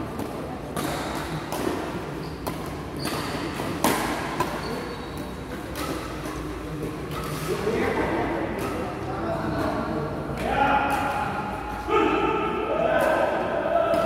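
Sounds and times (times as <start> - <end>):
racket striking shuttlecock: 0.2 - 7.7, 8.4 - 9.0
shoes squeaking on court floor: 0.8 - 10.1.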